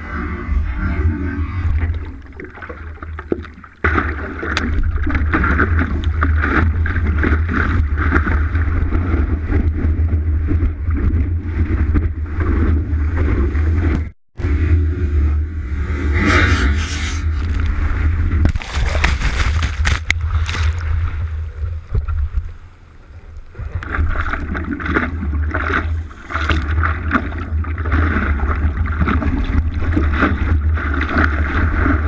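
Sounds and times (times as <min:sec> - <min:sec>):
heavy low rumble: 0:00.0 - 0:03.3, 0:04.7 - 0:24.2
water rushing and splashing: 0:01.6 - 0:14.1, 0:16.8 - 0:22.5, 0:23.4 - 0:32.0.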